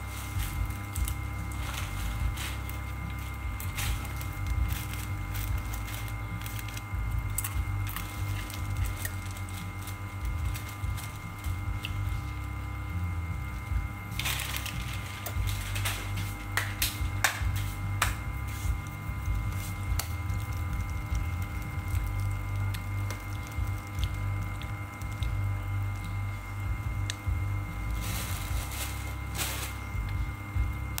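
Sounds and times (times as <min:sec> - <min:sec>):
plastic bag crinkling: 0:00.0 - 0:12.6, 0:13.5 - 0:26.4, 0:27.8 - 0:31.0
low machine hum: 0:00.0 - 0:31.0.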